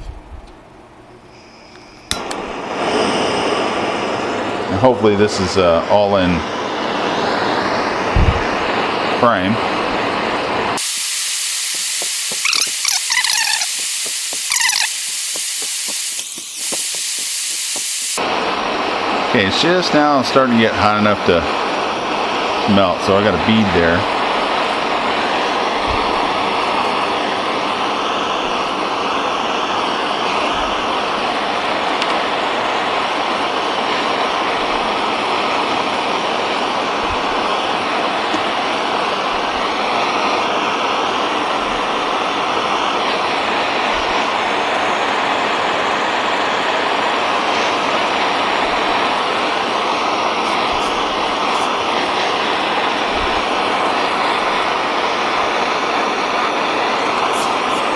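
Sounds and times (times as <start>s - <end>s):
gas torch hissing: 1.2s - 57.9s.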